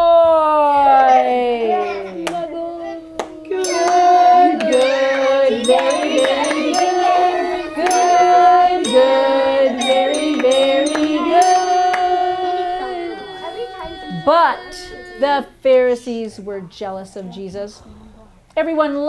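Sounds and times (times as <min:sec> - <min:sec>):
voices singing long notes: 0:02.2 - 0:15.6
bells struck: 0:03.5 - 0:15.4.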